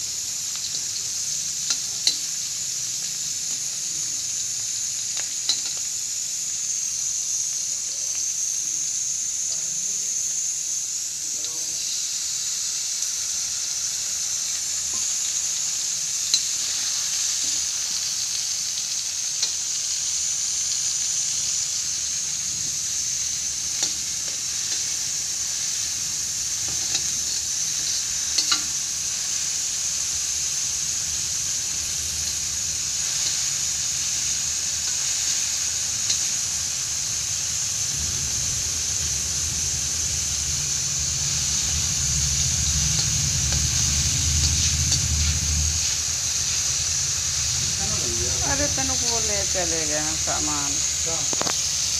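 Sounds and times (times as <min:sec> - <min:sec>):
onions sizzling in oil: 0:00.0 - 0:51.9.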